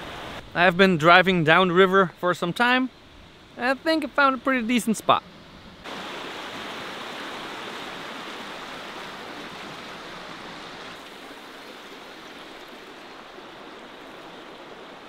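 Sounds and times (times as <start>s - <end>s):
river rushing over rocks: 5.9s - 15.0s.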